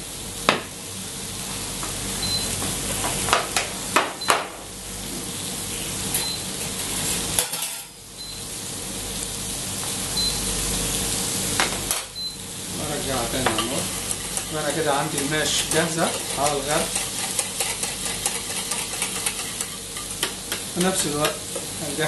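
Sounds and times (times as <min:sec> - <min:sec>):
steak sizzling on a griddle: 0:00.0 - 0:22.0
faint high beep: 0:02.2 - 0:02.5
whisk clinking in a saucepan: 0:13.4 - 0:21.4.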